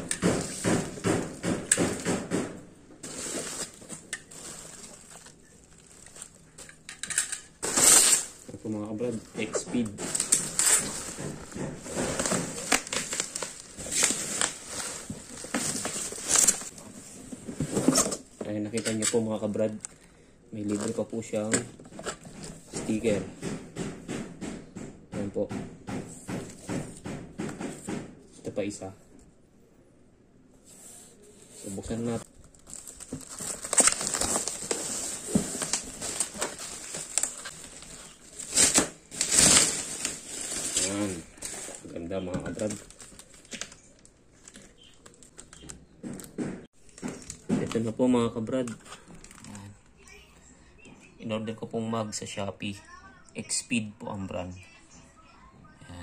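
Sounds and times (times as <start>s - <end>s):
cardboard and plastic rustling: 3.0s - 19.8s, 20.6s - 23.2s, 30.7s - 49.8s.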